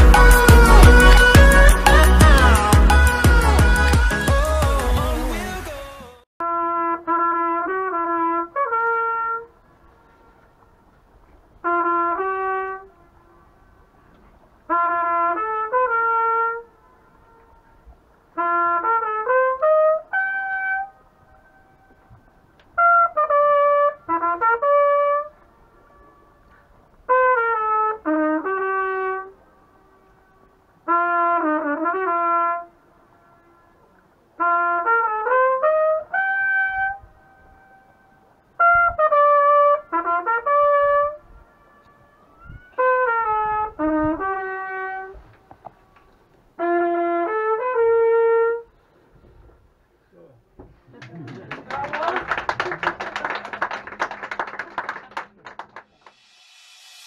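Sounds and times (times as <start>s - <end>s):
trumpet playing short phrases: 0.0s - 9.5s, 11.6s - 13.0s, 14.7s - 16.7s, 18.4s - 21.0s, 22.8s - 25.4s, 27.1s - 29.4s, 30.9s - 33.7s, 34.4s - 37.8s, 38.6s - 41.3s
trumpet echo off rock wall: 0.0s - 10.2s, 11.6s - 13.4s, 14.6s - 17.6s, 18.3s - 45.8s, 46.6s - 48.7s.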